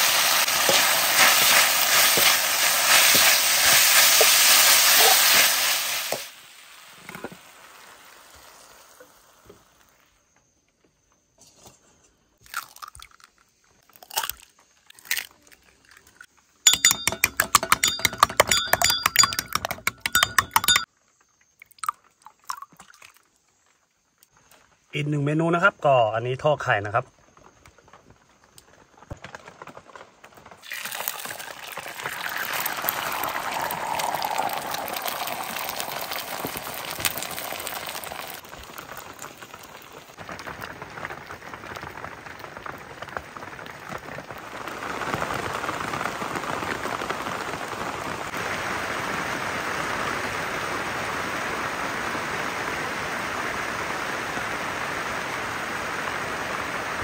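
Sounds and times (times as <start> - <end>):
eggs sizzling in hot oil: 0.0 - 10.0, 12.5 - 13.4, 30.6 - 40.2.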